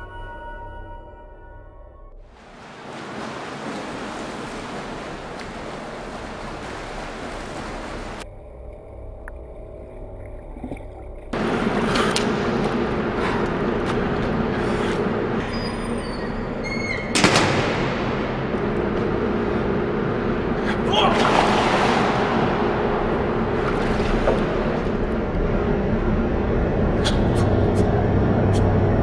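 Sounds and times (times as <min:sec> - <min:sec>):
low steady hum: 0:02.1 - 0:29.0
water splashing in a pool: 0:02.3 - 0:08.3, 0:10.4 - 0:14.8, 0:20.8 - 0:25.4.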